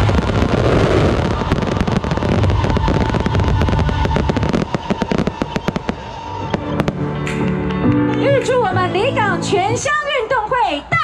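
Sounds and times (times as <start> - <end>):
fireworks crackling bangs: 0.0 - 7.6.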